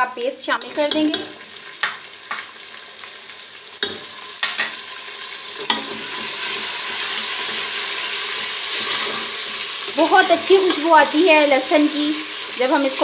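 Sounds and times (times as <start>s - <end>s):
onions sizzling in oil: 0.0s - 13.0s
metal spoon knocking pot: 0.6s - 2.0s.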